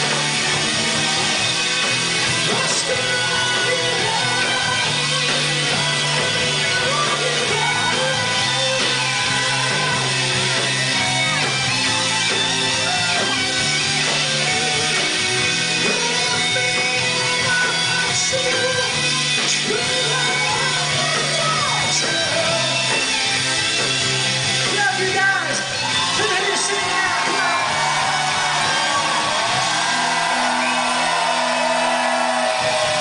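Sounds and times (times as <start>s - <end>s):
live rock band playing: 0.0s - 33.0s
person singing: 2.4s - 10.4s, 15.8s - 23.0s.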